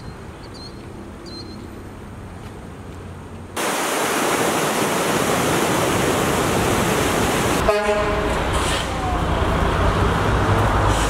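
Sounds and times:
rushing floodwater: 3.6s - 11.0s.

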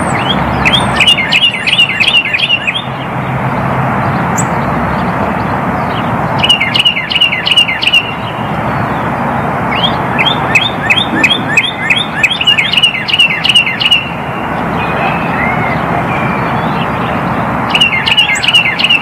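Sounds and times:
bird singing down-slurred whistles: 0.0s - 3.0s, 6.4s - 8.2s, 9.7s - 19.0s.

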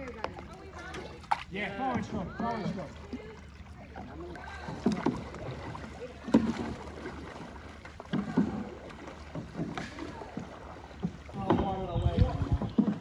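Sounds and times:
paddle knock: 0.0s - 13.0s
paddles splashing water: 0.0s - 13.0s
wind rumble on microphone: 11.4s - 13.0s.

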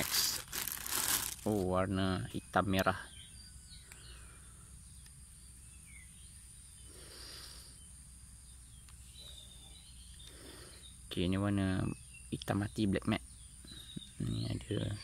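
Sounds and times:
soft rustle: 0.0s - 1.7s.

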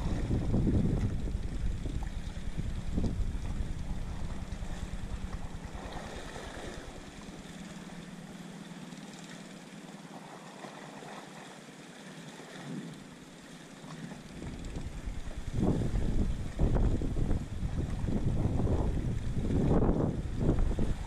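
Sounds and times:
wind rushing: 0.0s - 7.0s
low rumble: 0.0s - 8.4s, 14.3s - 21.0s
sea water rushing: 0.0s - 21.0s.

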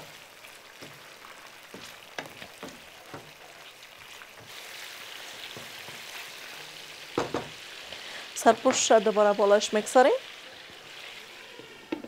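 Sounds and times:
meat sizzling in oil: 0.0s - 12.0s
spatula scraping and knocking pan: 0.8s - 3.4s, 5.4s - 6.6s.

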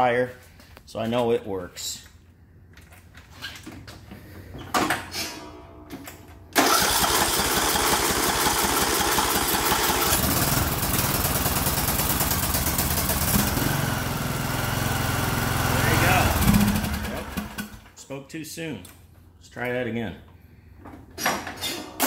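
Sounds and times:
lawn tractor engine cranking: 6.6s - 17.9s
lawn tractor engine running: 6.6s - 17.9s.

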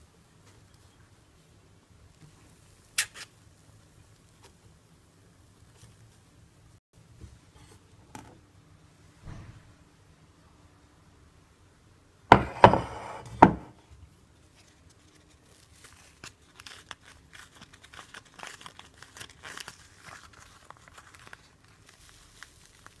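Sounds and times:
paper liner crinkling and tearing: 14.5s - 23.0s.

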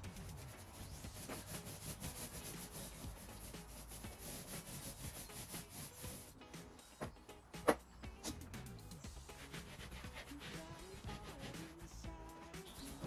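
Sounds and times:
paintbrush strokes on wall: 0.0s - 6.4s, 9.3s - 13.0s.

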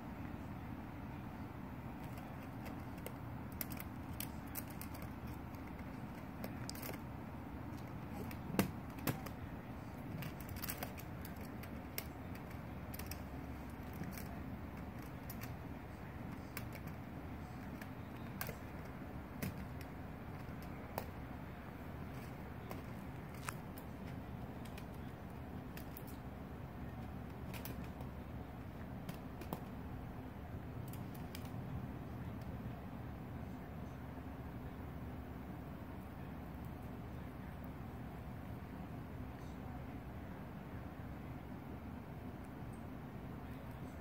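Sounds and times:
plastic cube clicking on carpet: 7.7s - 26.2s, 26.9s - 29.8s.

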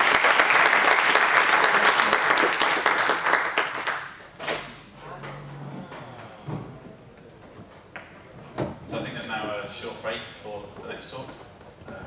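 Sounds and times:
audience applauding: 0.0s - 4.2s.

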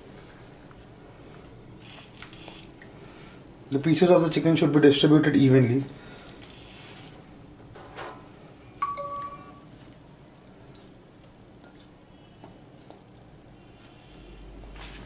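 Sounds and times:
short ringing ding: 8.8s - 9.7s.

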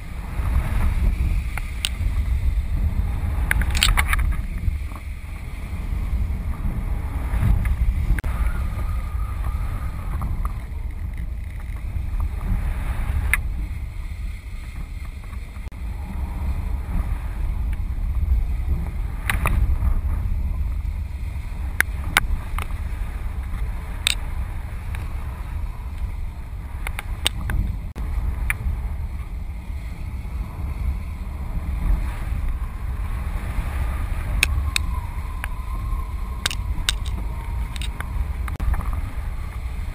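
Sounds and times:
wind buffeting microphone: 0.0s - 39.9s
sharp clicks: 36.4s - 38.6s.

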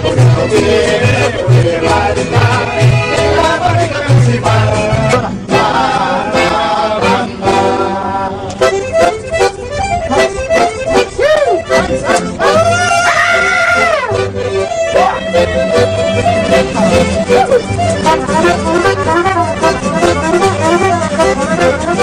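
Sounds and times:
mariachi band playing: 0.0s - 22.0s.

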